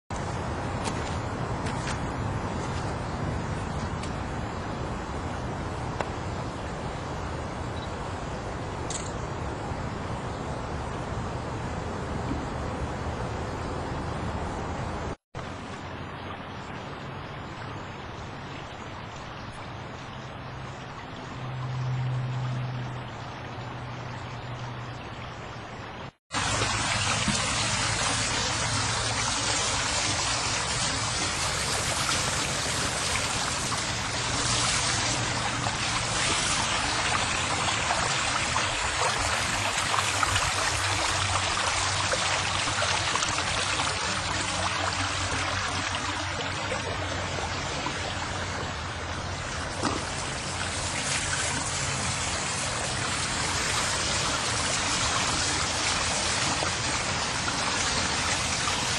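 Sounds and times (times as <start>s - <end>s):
running water hissing: 26.3s - 58.9s.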